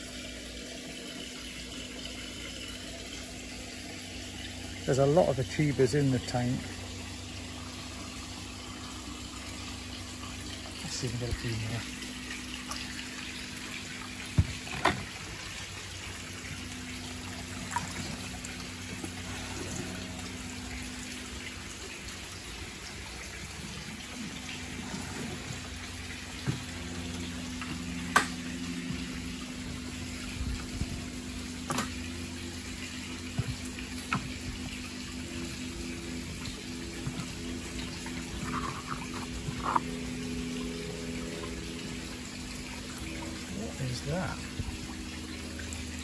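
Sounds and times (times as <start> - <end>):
water running into tank: 0.0 - 46.0.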